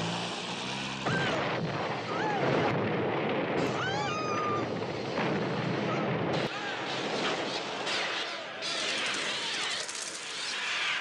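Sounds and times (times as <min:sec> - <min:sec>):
car engine humming: 0:00.0 - 0:02.4
roaring fire: 0:00.0 - 0:10.8.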